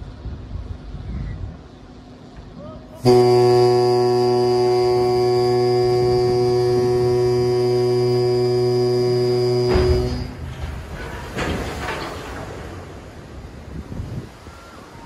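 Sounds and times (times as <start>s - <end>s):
low noise rush: 0.0s - 15.0s
ship's horn long low blast: 3.0s - 11.4s.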